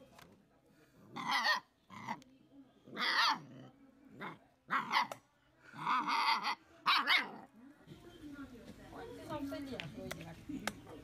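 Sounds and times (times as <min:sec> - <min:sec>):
puppy barking: 0:04.7 - 0:05.2, 0:05.9 - 0:07.5.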